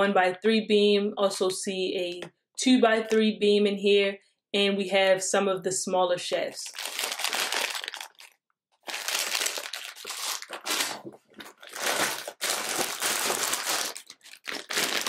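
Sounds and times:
plastic bag crinkling: 6.6 - 15.0.

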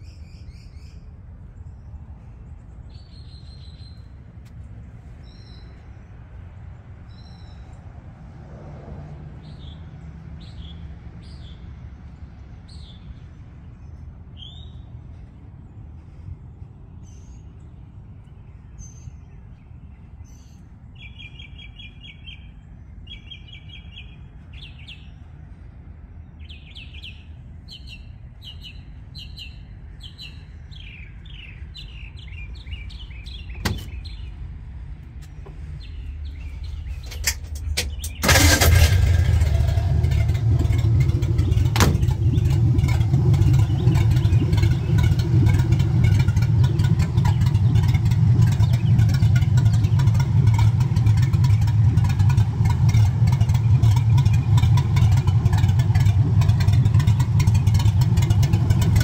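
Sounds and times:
songbirds trilling: 0.0 - 8.0, 9.3 - 59.0
truck engine starting and running: 0.0 - 59.0.

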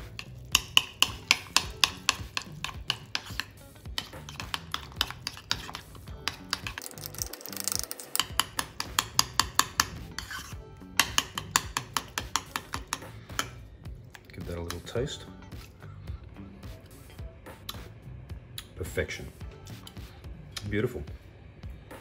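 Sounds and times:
metal spoon scraping ceramic: 0.0 - 6.9, 7.5 - 13.6.

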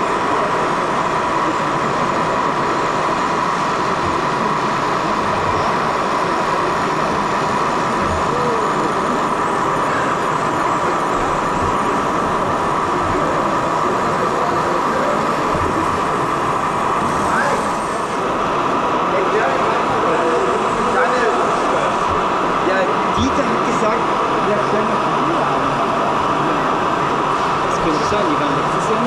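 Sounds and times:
hall background noise: 0.0 - 29.0.

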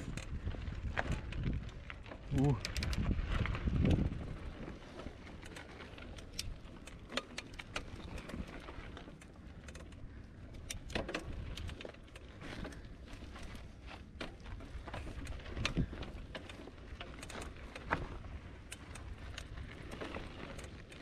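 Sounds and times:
bike clicks and rattles: 0.0 - 21.0
tyres crunching on gravel: 11.2 - 21.0.

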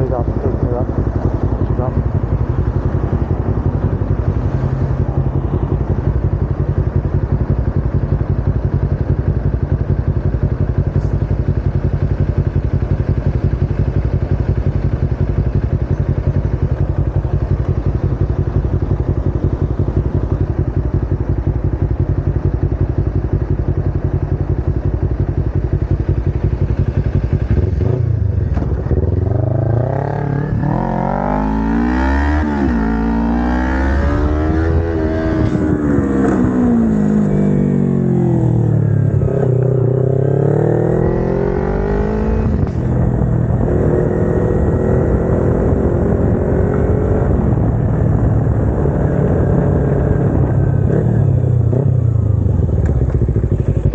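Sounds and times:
motorcycle engine idling and revving: 0.0 - 53.9.

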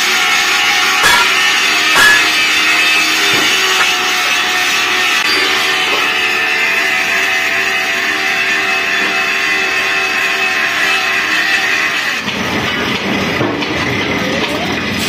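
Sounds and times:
machine whining and humming: 0.0 - 12.4.

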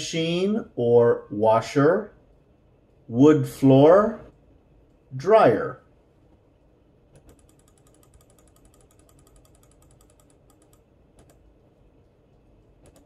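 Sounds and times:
computer mouse clicks: 7.1 - 12.2, 12.8 - 13.0.

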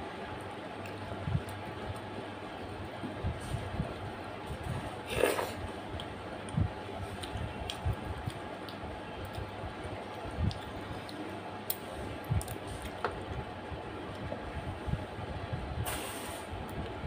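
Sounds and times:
chewing sounds: 5.2 - 11.8.

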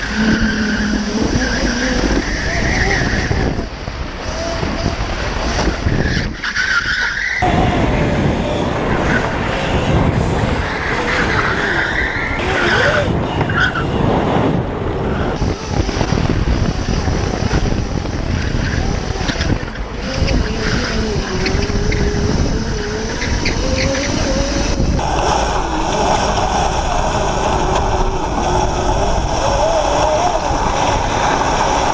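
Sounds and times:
electric motor whine: 15.4 - 31.9.

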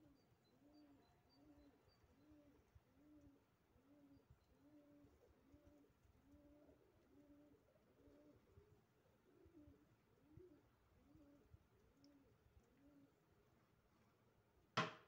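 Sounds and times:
pigeon cooing: 0.6 - 8.5, 9.1 - 11.5.

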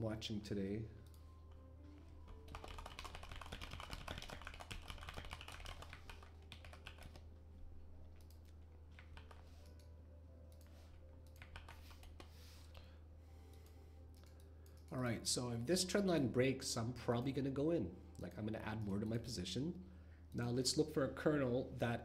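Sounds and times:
typing on computer keyboard: 2.3 - 7.3, 8.1 - 9.9, 10.5 - 12.3.

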